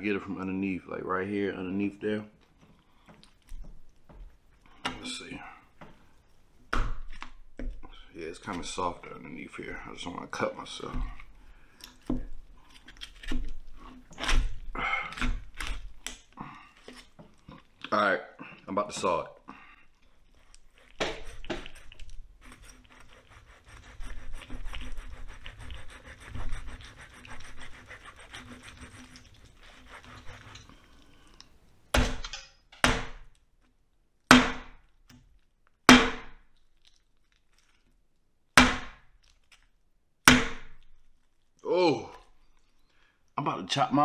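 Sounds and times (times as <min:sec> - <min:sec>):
knife sawing bone: 0:20.7 - 0:30.7
knife chopping into bone: 0:34.3 - 0:34.8, 0:35.9 - 0:36.4, 0:38.6 - 0:39.0, 0:40.3 - 0:40.8.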